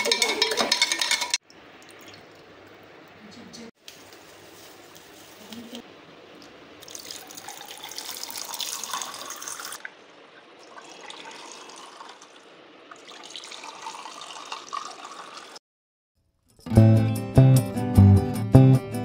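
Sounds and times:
drink pouring over ice: 0:06.8 - 0:09.8, 0:10.6 - 0:15.6.

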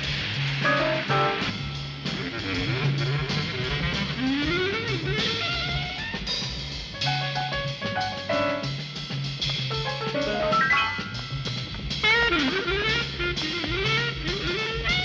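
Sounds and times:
guitar: 0:00.0 - 0:06.2, 0:07.0 - 0:15.0
drum kit: 0:00.0 - 0:15.0
jazz-funk music: 0:00.0 - 0:15.0
repeating bass line: 0:09.7 - 0:12.2.

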